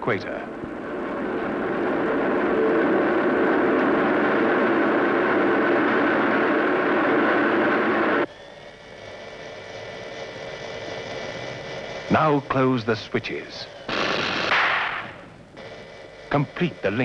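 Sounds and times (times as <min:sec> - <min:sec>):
turbines and generators rushing: 0:00.0 - 0:08.3
faint hum with steady tones: 0:00.0 - 0:17.0.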